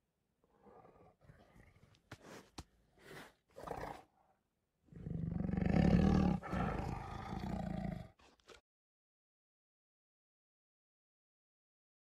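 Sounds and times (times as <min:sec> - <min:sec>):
tiger roar: 0:03.0 - 0:04.1, 0:04.9 - 0:08.3.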